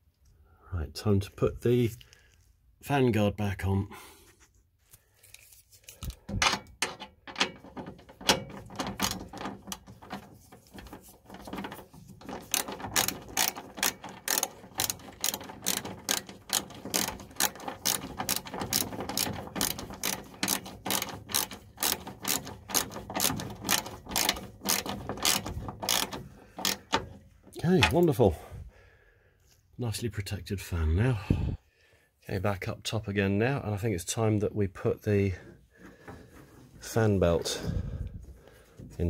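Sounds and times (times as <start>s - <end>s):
ratchet wrench clicking: 11.5s - 27.0s.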